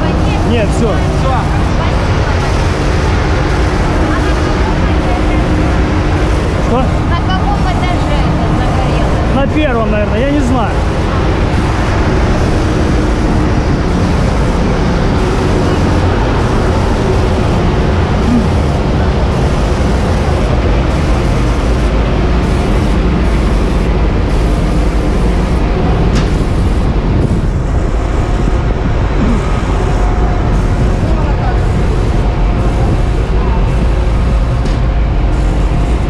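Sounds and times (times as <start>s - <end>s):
fire truck engine drone: 0.0s - 36.0s.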